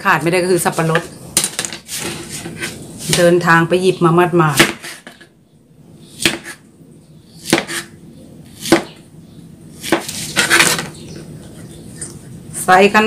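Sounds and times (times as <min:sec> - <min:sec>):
knife chopping on plastic board: 0:06.2 - 0:06.6, 0:07.4 - 0:07.9, 0:08.6 - 0:09.0, 0:09.8 - 0:10.9.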